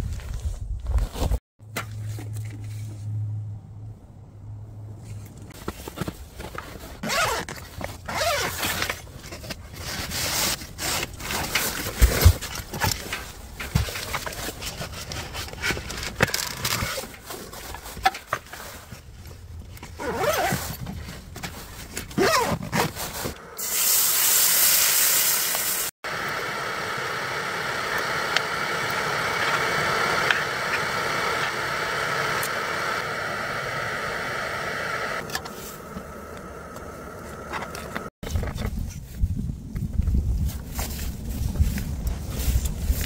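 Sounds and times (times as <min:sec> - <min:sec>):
liquid sizzling in hot skillet: 0:23.6 - 0:25.9.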